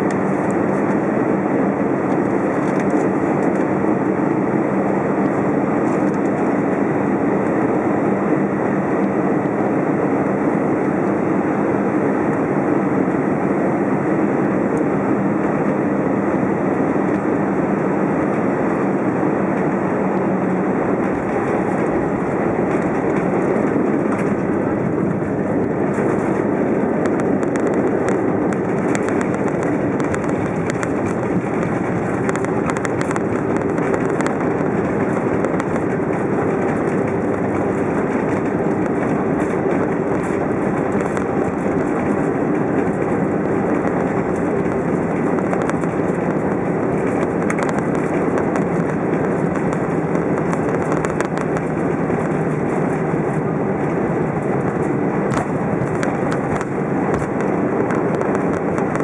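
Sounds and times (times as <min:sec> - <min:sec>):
aircraft engine and airflow noise: 0:00.0 - 0:59.0
faint hum: 0:00.0 - 0:59.0
wheels rumbling on runway: 0:00.0 - 0:59.0.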